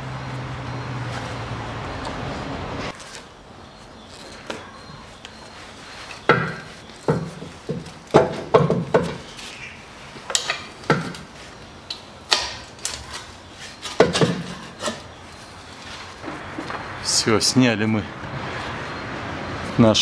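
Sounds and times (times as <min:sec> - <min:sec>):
metal knocks and clanks: 0:06.2 - 0:09.3, 0:14.0 - 0:15.0.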